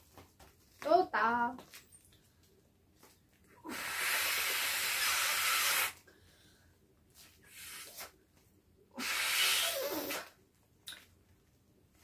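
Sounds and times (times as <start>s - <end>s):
breath blowing into beach ball valve: 3.6s - 6.0s, 7.4s - 8.2s, 9.0s - 10.4s.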